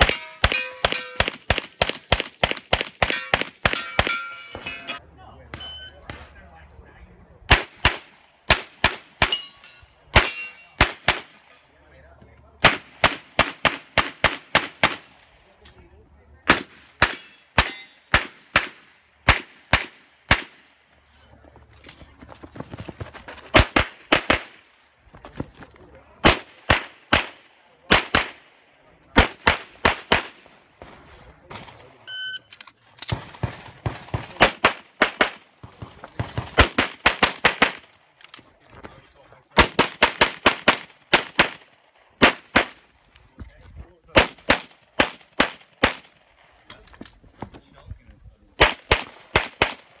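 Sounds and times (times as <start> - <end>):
rapid pistol fire: 33.1 - 37.8.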